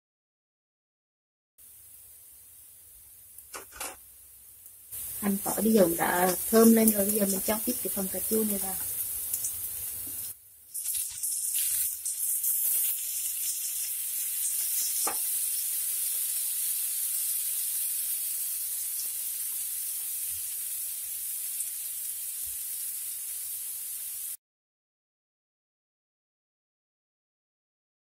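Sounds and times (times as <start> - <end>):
tomatoes sizzling in hot oil: 1.6 - 24.4.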